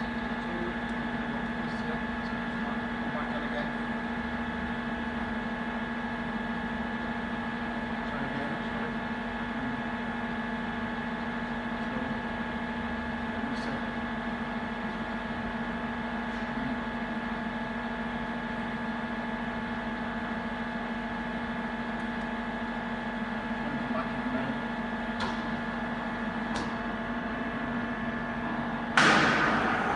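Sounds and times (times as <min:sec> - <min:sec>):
lathe humming: 0:18.6 - 0:29.9
high thin machine whine: 0:22.8 - 0:29.9.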